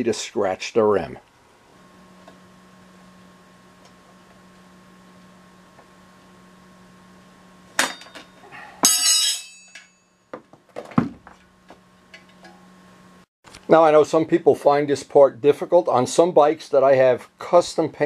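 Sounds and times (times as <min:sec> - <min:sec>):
steady low hum: 0:00.0 - 0:10.3.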